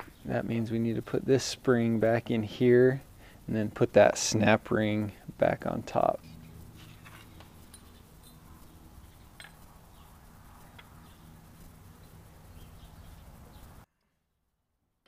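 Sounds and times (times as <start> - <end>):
background hiss and hum: 0.0 - 13.9
small metallic ticks: 6.2 - 13.8.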